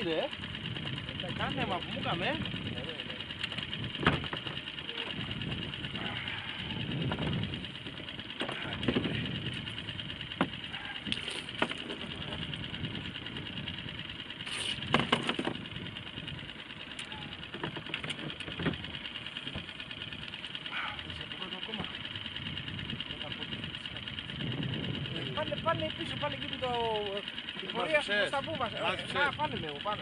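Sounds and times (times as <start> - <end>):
boat engine idling: 0.0 - 30.0
knocks and clicks of gear: 3.0 - 5.9, 6.9 - 13.6, 14.3 - 20.5.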